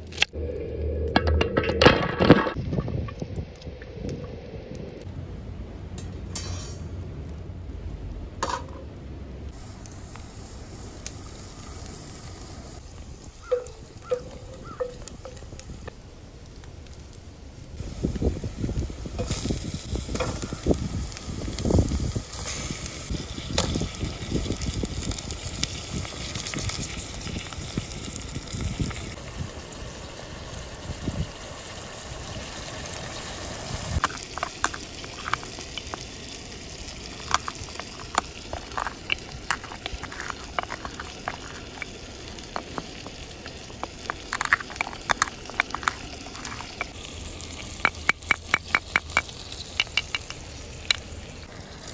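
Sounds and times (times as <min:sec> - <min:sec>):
meat sizzling in oil: 0:17.8 - 0:51.9
pestle crushing peppercorns: 0:34.0 - 0:36.2, 0:36.9 - 0:51.1.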